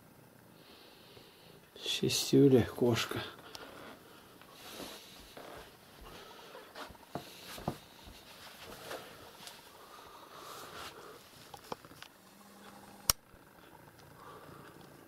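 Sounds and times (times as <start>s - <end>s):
cats rustling on carpet: 3.6s - 11.6s.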